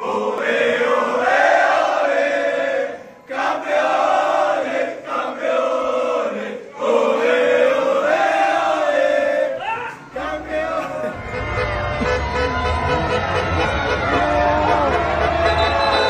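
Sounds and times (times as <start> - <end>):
men chanting in unison: 0.0 - 11.2.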